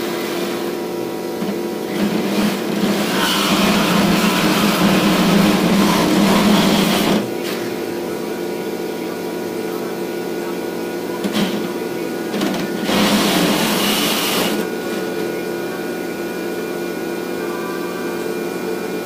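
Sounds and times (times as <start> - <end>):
reciprocating saw motor hum: 1.8 - 8.5, 11.9 - 19.0
saw blade cutting metal: 1.9 - 7.7, 12.7 - 14.6.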